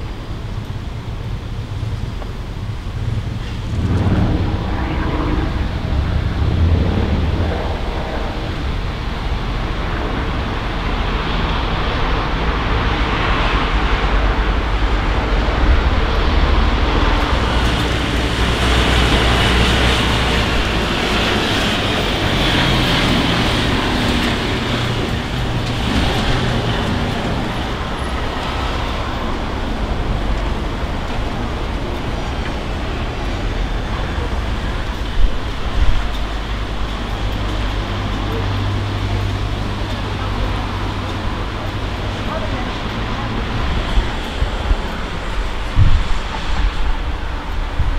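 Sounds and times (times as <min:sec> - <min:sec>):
road traffic rumble: 0:00.0 - 0:47.9
vehicle passing with hiss: 0:02.6 - 0:35.8.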